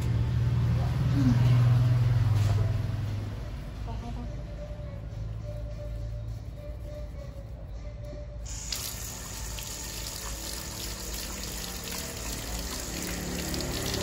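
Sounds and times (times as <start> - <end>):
water running: 8.5 - 14.0.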